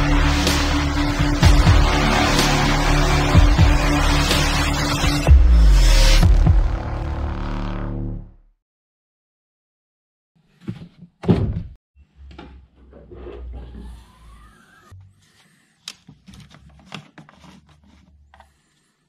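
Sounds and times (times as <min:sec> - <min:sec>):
loud thunk: 0:11.2 - 0:11.8.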